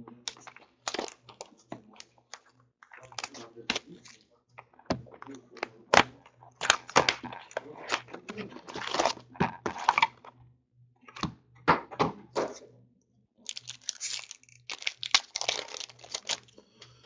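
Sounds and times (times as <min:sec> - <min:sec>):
plastic and foil wrapping tearing: 0:00.3 - 0:02.4, 0:03.0 - 0:04.2, 0:06.6 - 0:10.1, 0:13.5 - 0:16.5
foil packs rustling on table: 0:13.5 - 0:16.5.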